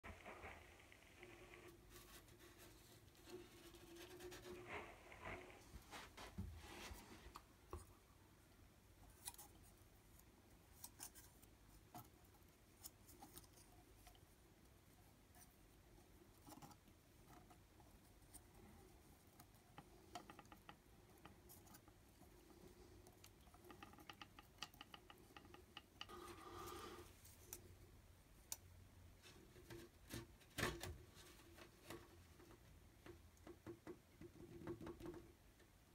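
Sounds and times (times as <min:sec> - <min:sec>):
faint scratches and clicks: 0:00.0 - 0:07.9, 0:09.0 - 0:14.3, 0:15.3 - 0:27.8.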